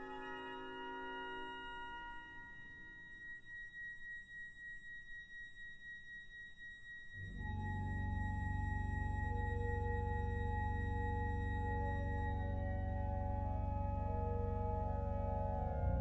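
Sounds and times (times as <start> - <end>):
pipe organ playing: 7.3 - 16.0.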